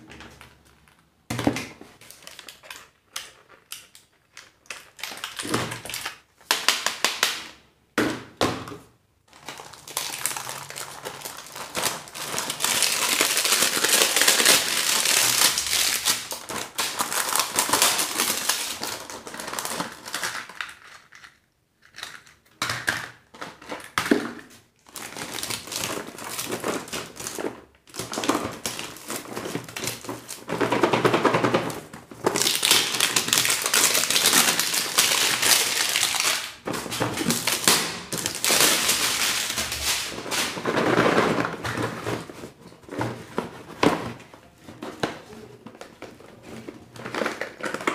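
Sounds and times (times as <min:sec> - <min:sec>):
wrappers crinkling and tearing: 0:02.0 - 0:07.1, 0:09.3 - 0:21.1, 0:24.8 - 0:42.6.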